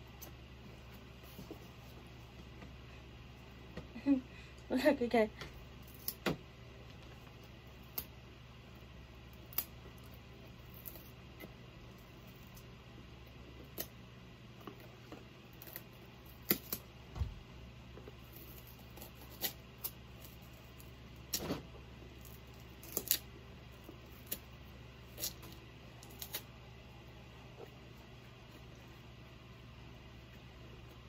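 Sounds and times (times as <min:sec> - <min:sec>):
faint low hum: 0:00.0 - 0:31.0
dull thump: 0:17.1 - 0:17.4.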